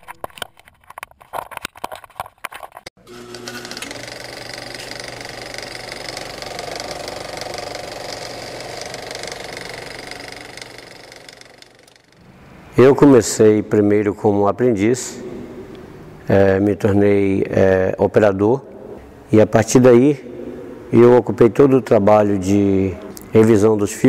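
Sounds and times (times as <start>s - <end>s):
small machine rattling: 3.1s - 12.3s.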